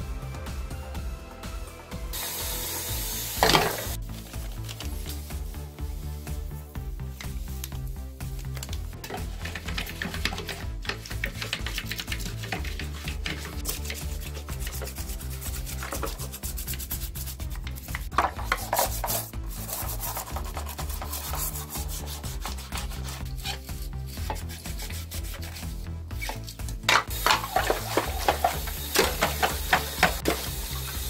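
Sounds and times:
water running from tap: 2.2s - 4.0s, 9.1s - 16.2s, 27.1s - 31.0s
bristle brush scrubbing plastic: 4.1s - 26.6s, 27.2s - 31.0s.

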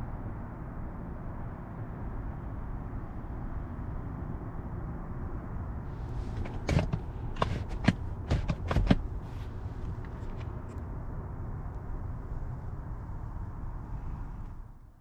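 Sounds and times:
leather seat creaking and tapping: 6.2s - 10.7s.

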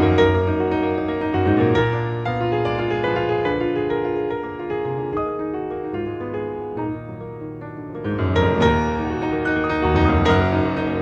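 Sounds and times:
classical piano music: 0.0s - 11.0s.

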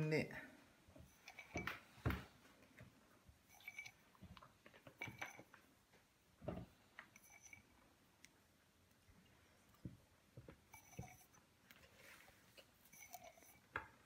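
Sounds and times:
soft rustles: 9.2s - 13.7s.

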